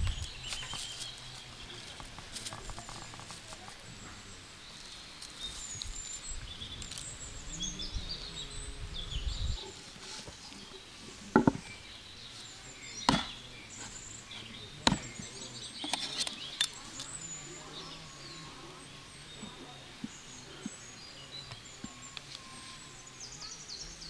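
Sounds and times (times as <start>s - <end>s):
birds chirping: 0.0s - 24.0s
sharp knocks: 11.4s - 11.6s, 13.1s - 13.3s.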